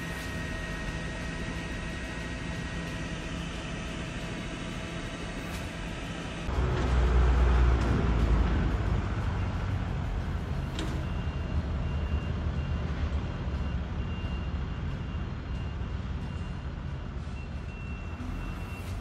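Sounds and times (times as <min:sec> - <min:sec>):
vehicle engines rumbling: 0:06.4 - 0:19.0
faint high beeps: 0:17.3 - 0:19.0.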